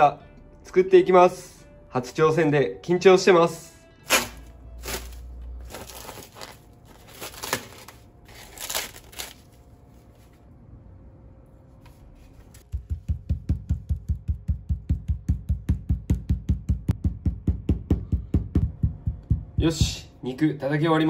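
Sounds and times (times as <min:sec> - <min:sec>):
crinkling and tearing: 0:04.1 - 0:10.2
meat pounding thuds: 0:12.7 - 0:20.2.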